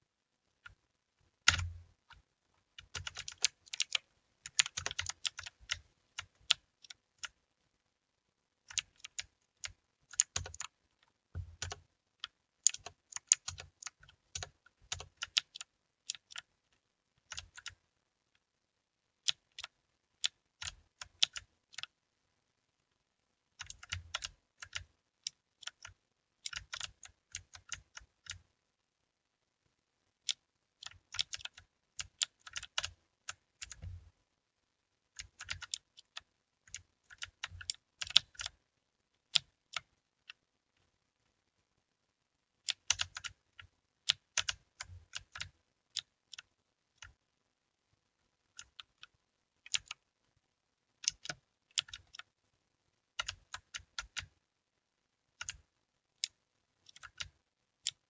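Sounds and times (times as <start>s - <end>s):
mechanical keyboard typing: 1.4s - 2.2s, 2.8s - 7.4s, 8.6s - 10.8s, 11.4s - 16.5s, 17.2s - 17.8s, 19.2s - 22.0s, 23.6s - 28.4s, 30.3s - 34.0s, 35.2s - 38.6s, 42.7s - 47.2s, 48.5s - 50.0s, 51.0s - 52.3s, 53.2s - 54.4s, 55.4s - 55.6s, 56.2s - 58.0s.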